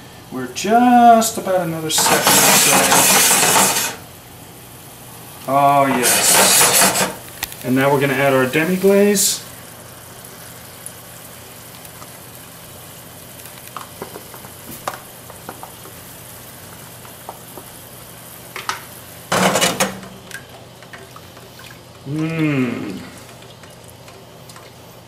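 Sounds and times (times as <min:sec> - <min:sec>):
sauce simmering and sizzling: 0:00.0 - 0:25.0
spatula tapping and scraping: 0:02.0 - 0:04.0, 0:05.9 - 0:07.2
person humming: 0:22.0 - 0:23.3.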